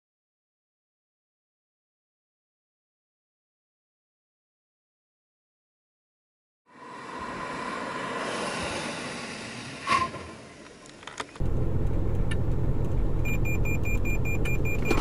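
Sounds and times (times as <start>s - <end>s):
car braking to a stop: 11.4s - 15.0s
low road rumble: 11.4s - 15.0s
rapid warning beeps: 13.2s - 15.0s.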